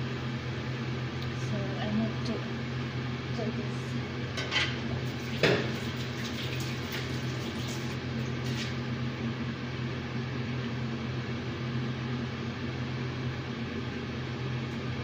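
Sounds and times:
low steady hum: 0:00.0 - 0:15.0
dishes clattering: 0:04.4 - 0:04.8, 0:05.4 - 0:05.9.

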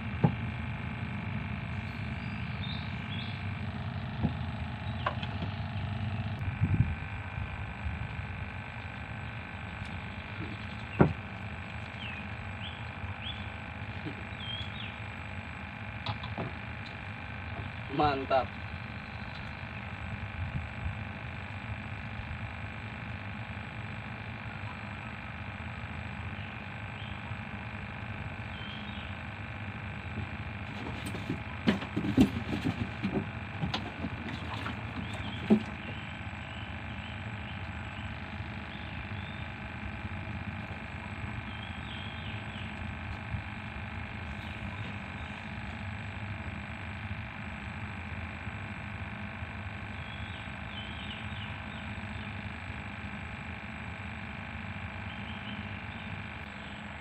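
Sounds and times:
steady droning hum: 0:00.0 - 0:57.0
gear knocking in wooden boat: 0:30.1 - 0:36.2.

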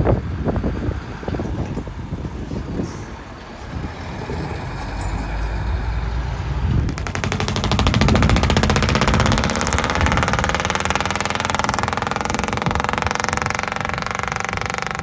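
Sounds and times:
truck engine rumble: 0:00.0 - 0:15.0
engine with rapid throb: 0:05.9 - 0:15.0.

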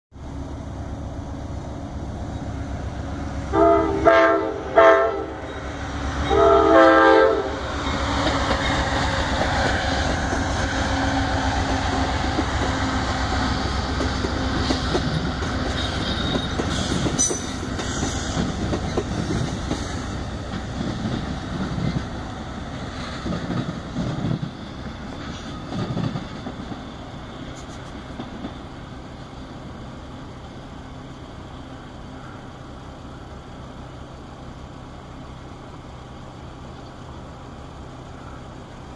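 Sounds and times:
train rumble: 0:00.1 - 0:38.9
train air horn: 0:03.5 - 0:05.6, 0:06.2 - 0:07.7
train wheels clickety-clack: 0:07.6 - 0:28.9.

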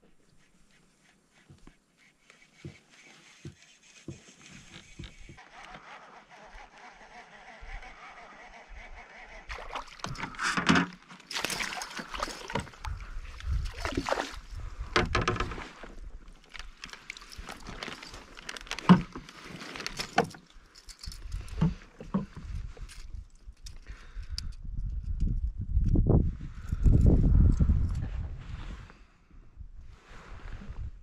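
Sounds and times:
water splashes around kayak: 0:09.5 - 0:20.3.

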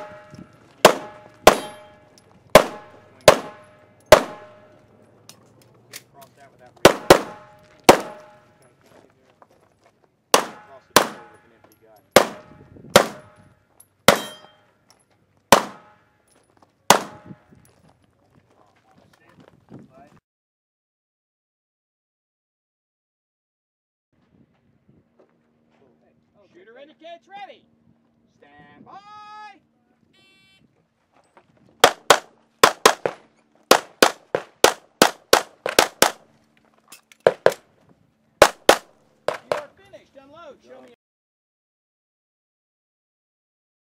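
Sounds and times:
pistol shots: 0:00.0 - 0:04.7, 0:06.8 - 0:08.4, 0:10.3 - 0:11.4, 0:12.1 - 0:13.4, 0:14.1 - 0:14.5, 0:15.5 - 0:16.0, 0:16.9 - 0:17.3, 0:31.8 - 0:36.2, 0:38.4 - 0:39.7.

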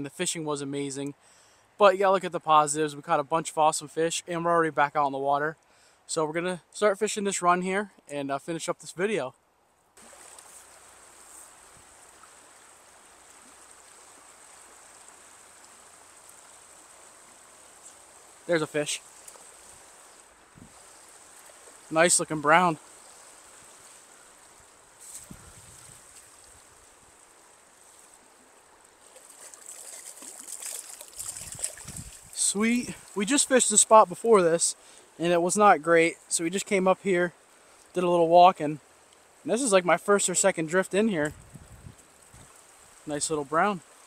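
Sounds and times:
stream water running: 0:09.9 - 0:44.0
water splashing: 0:10.0 - 0:35.0
high-pitched insect trill: 0:12.4 - 0:21.9, 0:22.8 - 0:26.7, 0:29.3 - 0:32.3.

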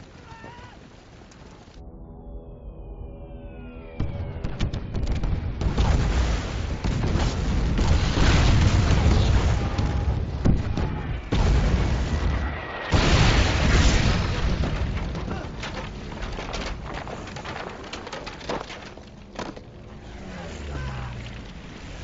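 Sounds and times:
descending bomb whistles: 0:02.1 - 0:05.1
heavy explosions with rumbling: 0:04.0 - 0:17.6.

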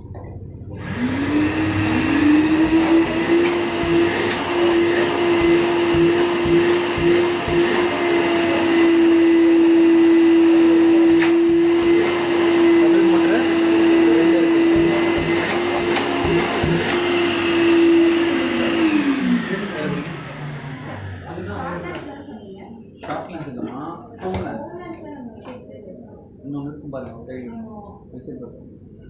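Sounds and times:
vacuum cleaner motor whining: 0:00.7 - 0:22.1.

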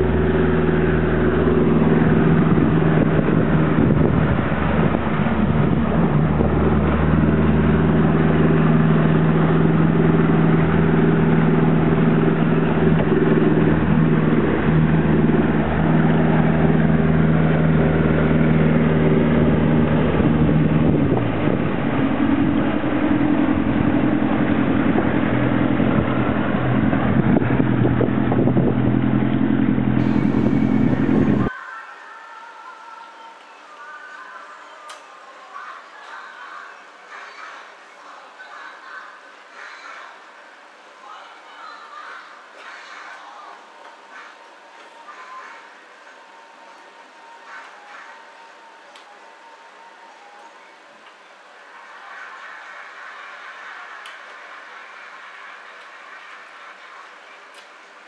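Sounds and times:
motorboat engine running: 0:00.0 - 0:31.5.

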